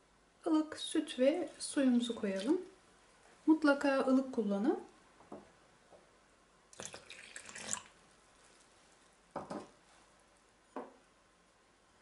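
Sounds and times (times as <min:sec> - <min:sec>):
water pouring into bowl: 0:01.4 - 0:02.8, 0:06.8 - 0:08.0.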